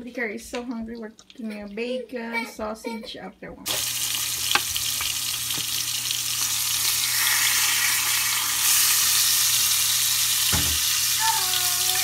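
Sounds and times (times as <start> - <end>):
sausage patties sizzling in oil: 3.6 - 12.0.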